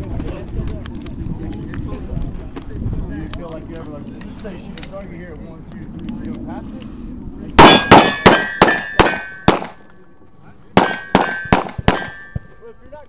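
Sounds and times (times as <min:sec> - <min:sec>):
steel plates ringing: 0:07.6 - 0:09.6, 0:10.8 - 0:12.6
bullets clanging on steel targets: 0:07.6 - 0:09.8, 0:10.8 - 0:12.7
pistol shots: 0:07.6 - 0:09.8, 0:10.8 - 0:12.4.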